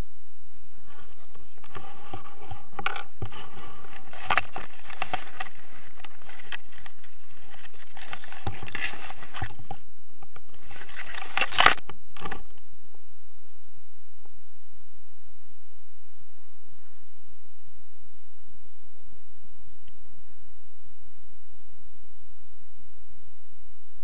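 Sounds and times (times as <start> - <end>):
gear and branches rustling: 0.5 - 23.9.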